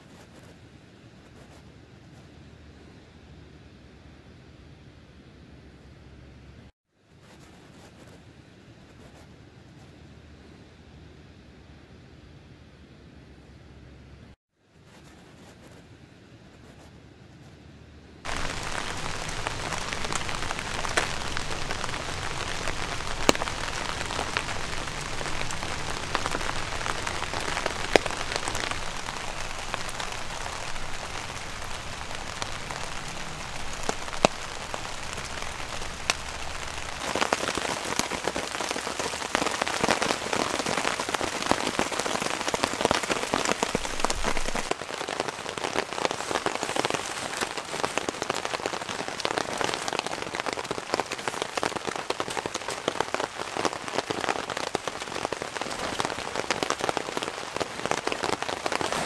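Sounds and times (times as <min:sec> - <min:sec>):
faint hiss: 0:00.0 - 0:59.0
rain falling on a tarp: 0:18.2 - 0:59.0.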